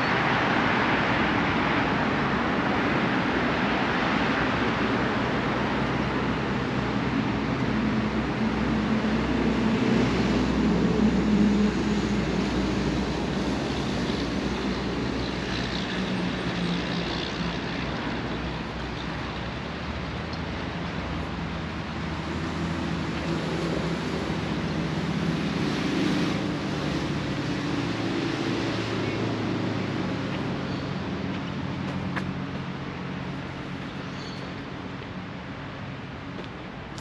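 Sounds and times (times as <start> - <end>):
road traffic noise: 0.0 - 37.0.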